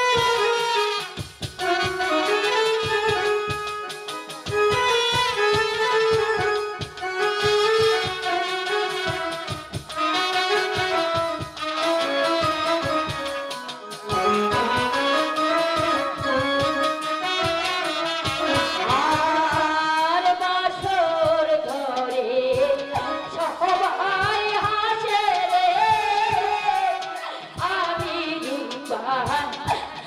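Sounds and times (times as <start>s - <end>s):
amplified band accompaniment: 0.0s - 30.0s
drum strokes: 0.0s - 30.0s
woman singing into a microphone: 18.4s - 30.0s.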